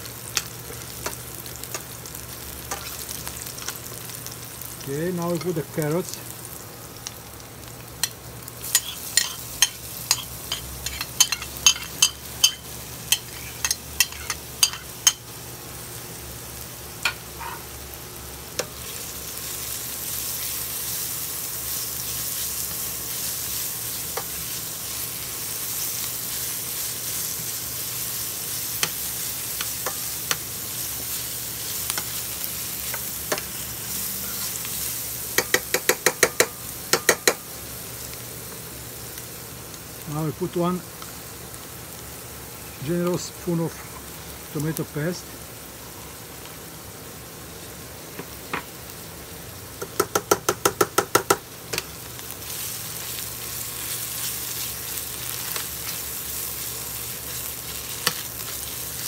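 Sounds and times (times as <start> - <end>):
vegetables sizzling in oil: 0.0 - 59.0
metal spoon clicking on pan: 35.4 - 37.4.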